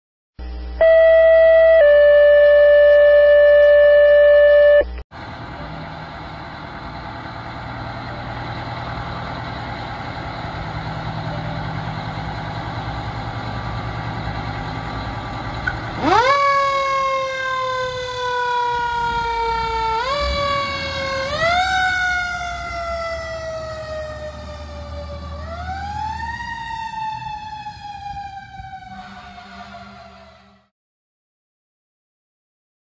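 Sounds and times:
loud steady tone: 0:00.4 - 0:05.0
fire engine motor running: 0:00.4 - 0:30.7
mechanical siren winding up: 0:00.8 - 0:05.0.

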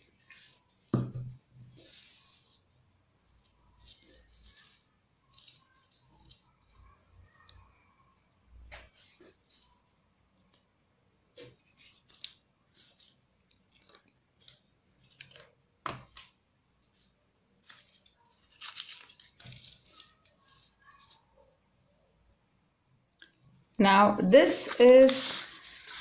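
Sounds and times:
paper rustling and crinkling: 0:00.0 - 0:07.5, 0:08.6 - 0:10.7, 0:11.3 - 0:21.5, 0:25.1 - 0:26.0.

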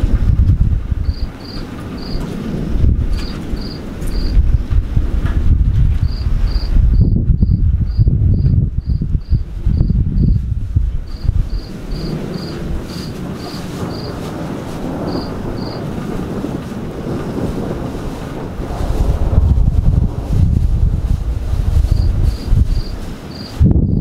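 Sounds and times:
loud low rumble: 0:00.0 - 0:23.0
steady rushing noise: 0:00.0 - 0:24.0
cricket chirping: 0:01.0 - 0:02.2, 0:03.2 - 0:04.4, 0:06.0 - 0:10.4, 0:11.1 - 0:14.1, 0:15.1 - 0:15.8, 0:21.9 - 0:24.0.

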